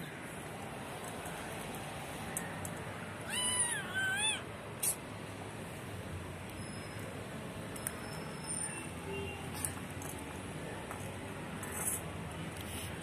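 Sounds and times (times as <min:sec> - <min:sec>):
cat meowing: 0:03.2 - 0:04.5.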